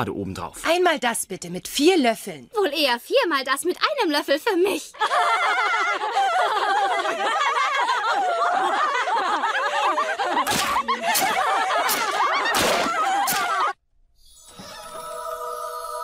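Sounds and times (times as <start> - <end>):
women laughing and shrieking: 5.0 - 13.8.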